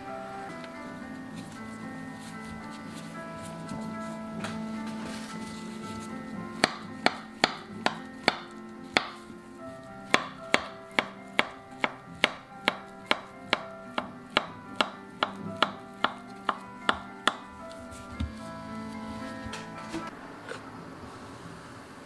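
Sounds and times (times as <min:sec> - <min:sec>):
knife knocking cutting board: 0:06.6 - 0:09.2, 0:10.1 - 0:17.5.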